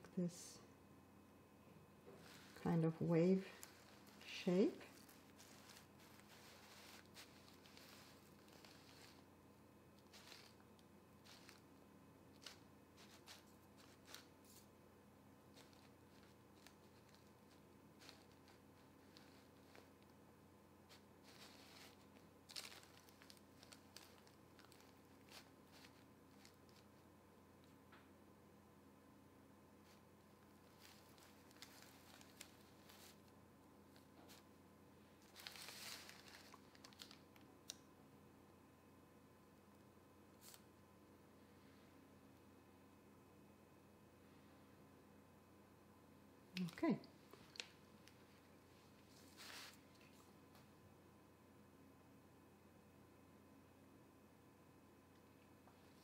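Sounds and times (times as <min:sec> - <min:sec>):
faint steady hum: 0:00.0 - 0:56.0
hands on parchment paper: 0:02.0 - 0:14.7, 0:15.5 - 0:20.2, 0:20.8 - 0:27.1, 0:29.8 - 0:33.4, 0:35.2 - 0:37.3, 0:48.9 - 0:50.3
plastic piping bag rustling: 0:02.0 - 0:14.8, 0:15.4 - 0:27.8, 0:29.8 - 0:34.5, 0:35.1 - 0:37.8, 0:46.6 - 0:50.3.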